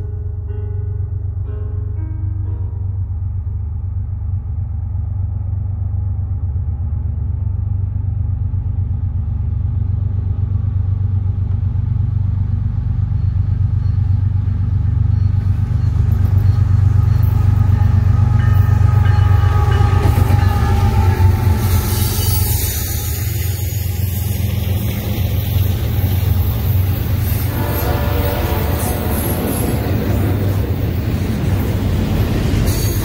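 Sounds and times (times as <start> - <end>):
diesel locomotive rumble: 0.0 - 33.0
wheels clattering on rails: 12.5 - 22.4.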